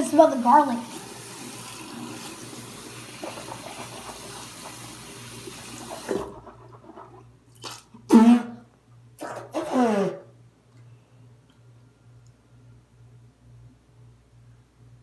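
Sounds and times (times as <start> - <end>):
tap water running into sink: 0.2 - 6.5
child making throat noises: 7.7 - 8.6, 9.2 - 10.3.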